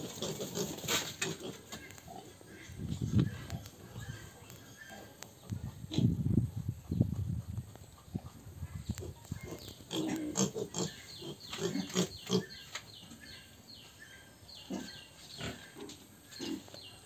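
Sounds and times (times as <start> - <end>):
piglets grunting: 0.0 - 6.2, 8.0 - 12.6.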